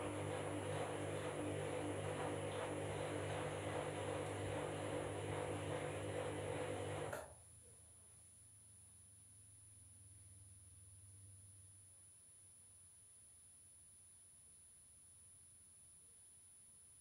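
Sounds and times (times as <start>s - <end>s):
washing machine motor hum: 0.0s - 7.4s.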